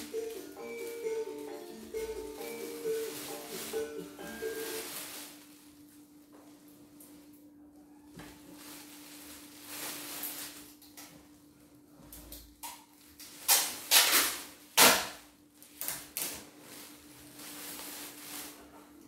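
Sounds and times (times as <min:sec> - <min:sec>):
plastic bag crinkling: 0:00.0 - 0:06.2, 0:08.4 - 0:11.1, 0:12.9 - 0:19.0.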